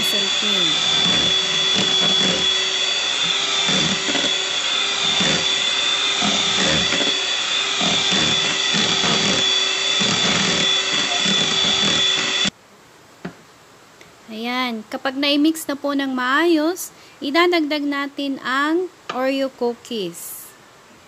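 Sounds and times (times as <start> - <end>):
electric hand mixer whining: 0.0 - 12.5.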